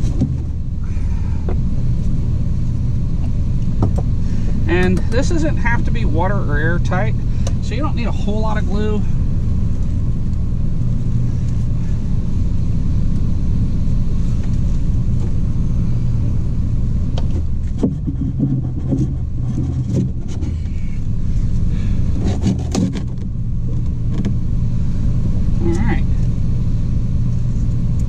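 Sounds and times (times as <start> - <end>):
machine hum and rumble: 0.0 - 28.0.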